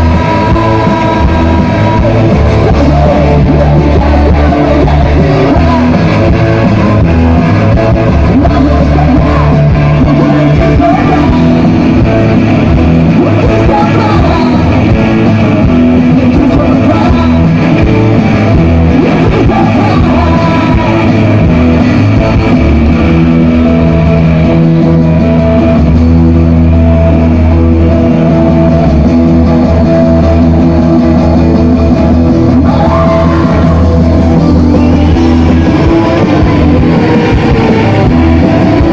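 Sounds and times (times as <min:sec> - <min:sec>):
person singing: 0:00.0 - 0:22.5, 0:30.5 - 0:38.9
distorted electric guitars: 0:00.0 - 0:38.9
drum kit: 0:00.0 - 0:38.9.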